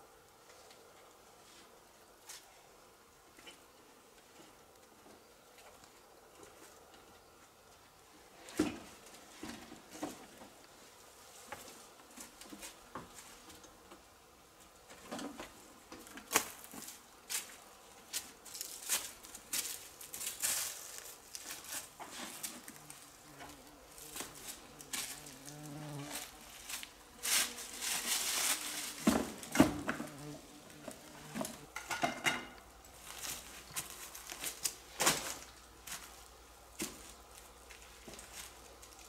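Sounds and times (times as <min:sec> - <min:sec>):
rustling dry brush: 0:16.5 - 0:31.7
insect buzzing: 0:19.4 - 0:31.8.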